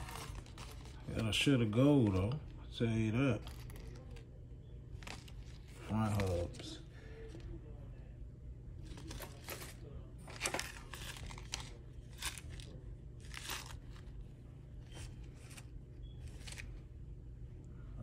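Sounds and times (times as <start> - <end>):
plastic bags crinkling: 0.0 - 2.5.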